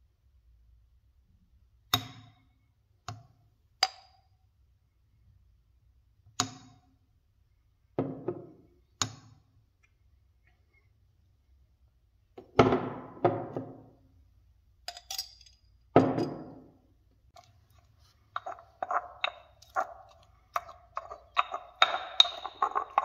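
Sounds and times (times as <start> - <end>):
metal spoon clinking against glass: 14.9 - 16.4.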